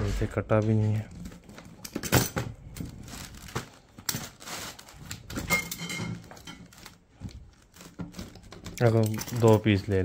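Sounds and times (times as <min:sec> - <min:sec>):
scraping rustle: 0:02.8 - 0:10.0.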